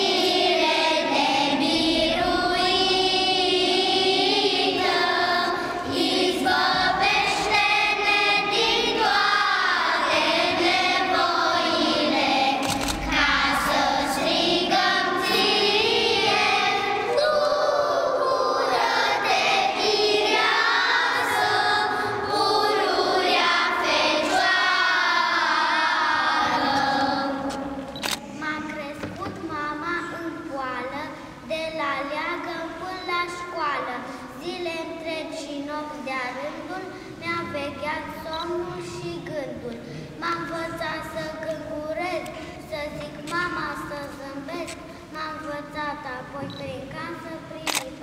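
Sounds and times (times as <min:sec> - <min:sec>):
children's choir singing: 0:00.0 - 0:28.4.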